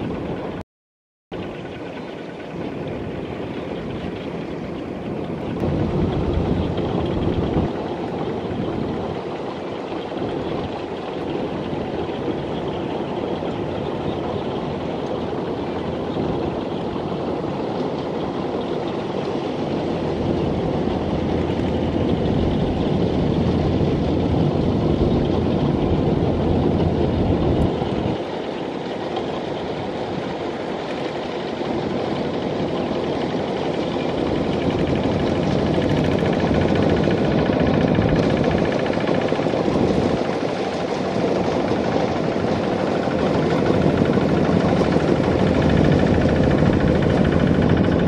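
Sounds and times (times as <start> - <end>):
diesel tractor engine under load: 19.1 - 30.8.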